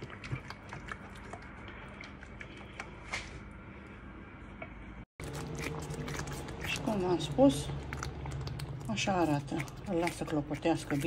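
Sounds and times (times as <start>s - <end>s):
sauce squishing: 0.0s - 3.0s, 5.2s - 11.0s.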